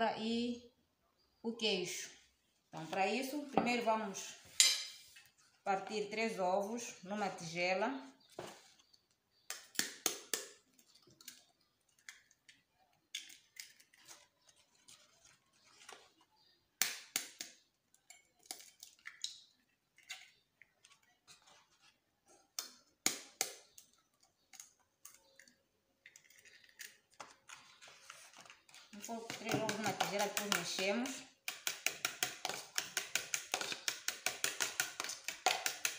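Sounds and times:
eggshells tapping on rim: 29.1 - 35.9.

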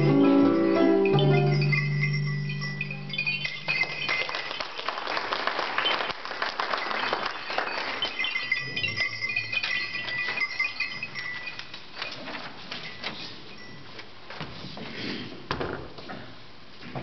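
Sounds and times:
clicks and clinks of handling: 8.2 - 14.1.

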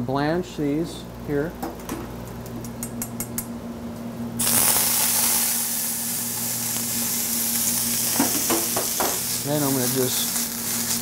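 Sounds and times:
peas sizzling in a pan: 4.4 - 11.0.

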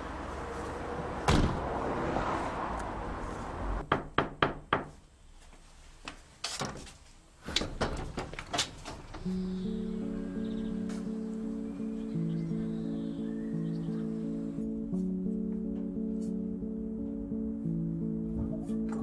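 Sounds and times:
car door slamming: 1.3 - 1.7.

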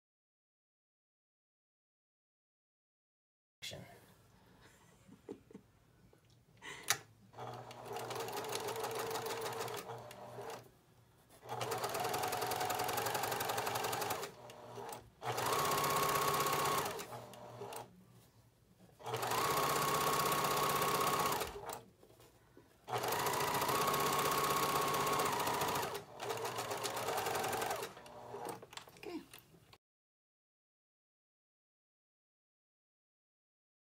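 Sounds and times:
sewing machine stitching: 7.4 - 10.7, 11.4 - 17.9, 19.0 - 21.8, 22.8 - 28.8.

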